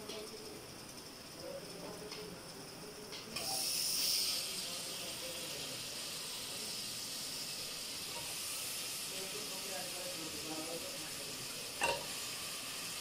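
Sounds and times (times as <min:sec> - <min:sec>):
meat sizzling in hot oil: 0:03.4 - 0:13.0.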